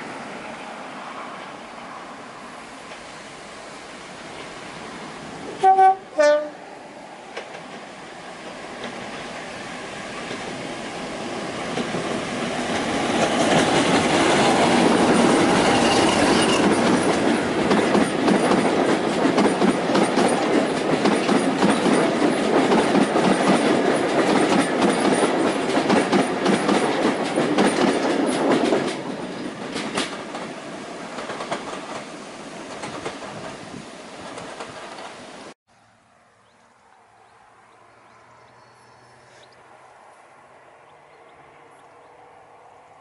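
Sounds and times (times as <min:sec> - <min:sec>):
diesel locomotive engine passing: 0:00.0 - 0:43.0
coaches clattering over rail joints: 0:11.7 - 0:32.1, 0:32.7 - 0:35.2.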